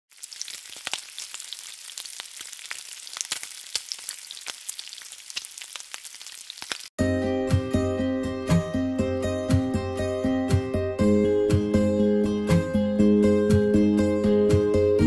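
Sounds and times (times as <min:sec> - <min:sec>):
food sizzling in hot oil: 0:00.1 - 0:07.0
oil popping and crackling: 0:00.1 - 0:07.0.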